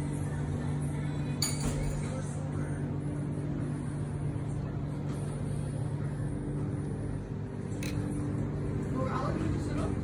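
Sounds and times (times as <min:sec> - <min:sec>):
constant hum: 0:00.0 - 0:10.0
low mechanical drone: 0:00.0 - 0:10.0.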